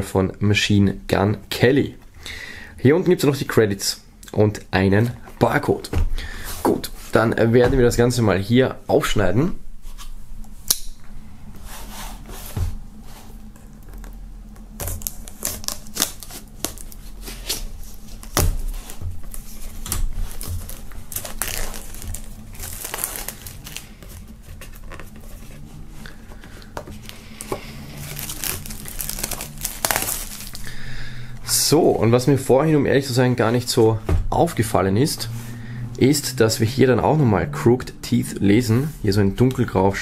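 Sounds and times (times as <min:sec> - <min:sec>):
plastic tearing: 0:13.7 - 0:30.7
plastic film crinkling: 0:13.7 - 0:30.8.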